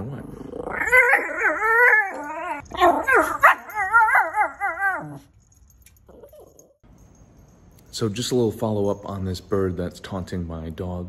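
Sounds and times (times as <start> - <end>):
dog yelping: 0.7 - 5.4.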